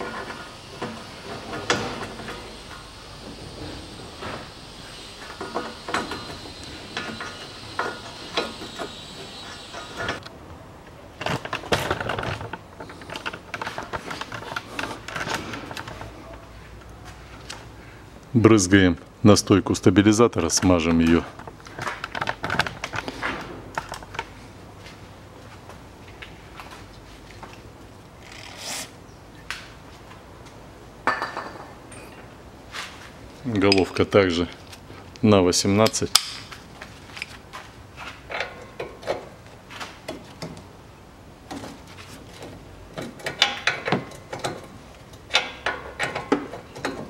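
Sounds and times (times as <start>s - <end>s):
aerosol spray hiss: 2.5s - 10.0s.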